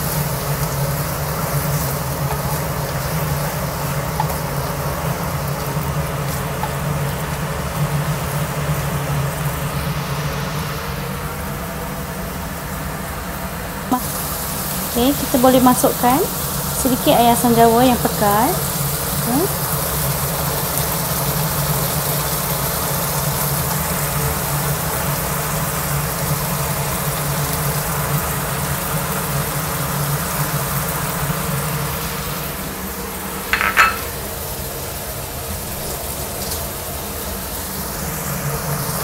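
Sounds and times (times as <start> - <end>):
prawns sizzling in a pan: 0.0 - 39.0
bowl knocking pan: 33.5 - 34.2.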